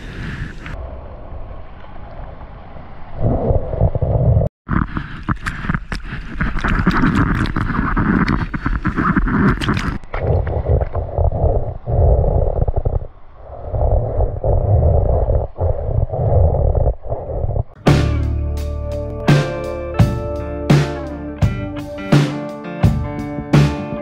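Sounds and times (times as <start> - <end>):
wind rumble on microphone: 0.0 - 17.8.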